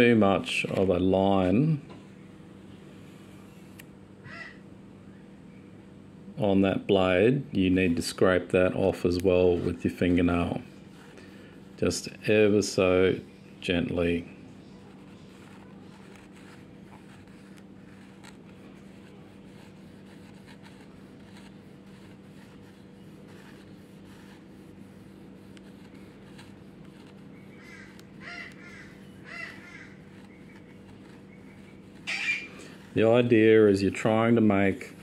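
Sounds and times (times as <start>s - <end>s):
steady low hum: 0.0s - 35.0s
bird calling: 4.2s - 5.3s, 27.3s - 32.9s
fingernail scraping plastic blade: 14.8s - 24.6s, 25.4s - 33.3s.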